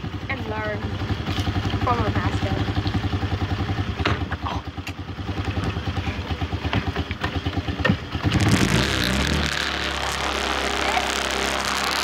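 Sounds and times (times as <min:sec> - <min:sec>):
atv engine idling and revving: 0:00.0 - 0:12.0.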